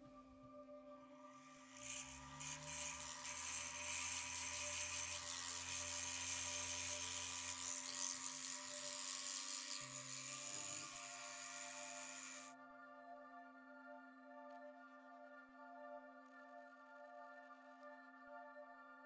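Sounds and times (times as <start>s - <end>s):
rotary tool grinding ceramic: 1.6s - 12.5s.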